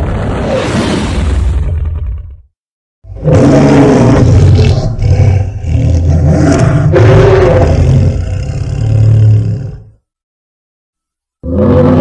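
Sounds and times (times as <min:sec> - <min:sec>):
deep creature roar: 0:03.1 - 0:10.0, 0:11.4 - 0:12.0.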